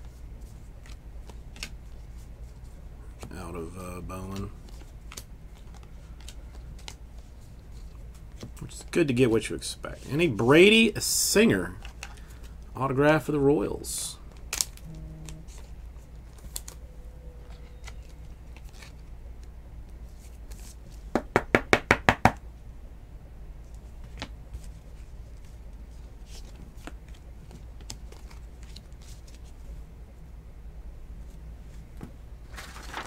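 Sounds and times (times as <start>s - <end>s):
steady low hum: 0.0s - 33.0s
card sleeves clicking and rustling: 17.4s - 19.5s.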